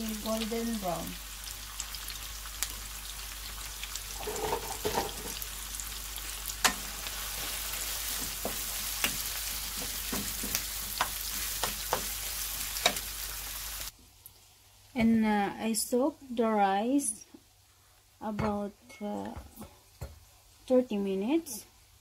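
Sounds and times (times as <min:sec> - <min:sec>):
onions sizzling in a pan: 0:00.0 - 0:22.0
wooden spatula scraping a pan: 0:04.2 - 0:05.4.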